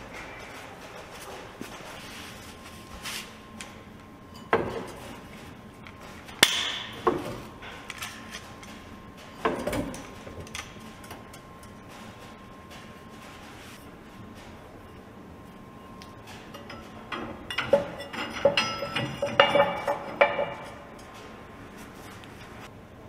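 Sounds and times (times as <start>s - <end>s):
tools knocking and clanking: 4.3s - 5.2s, 6.4s - 13.4s, 16.2s - 21.4s.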